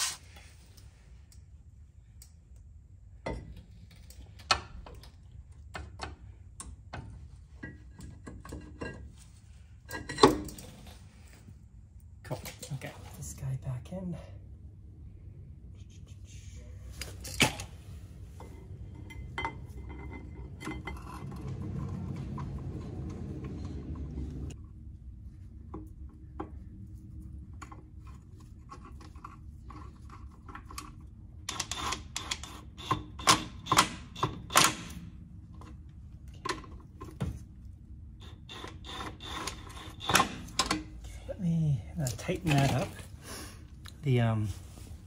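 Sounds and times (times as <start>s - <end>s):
metal clinks and knocks: 18.4s - 24.6s.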